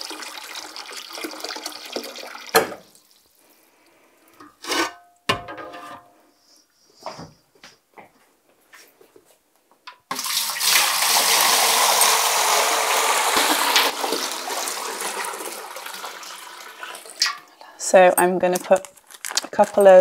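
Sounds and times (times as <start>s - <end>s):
water pouring into a pot: 0.0s - 3.6s, 10.1s - 17.7s.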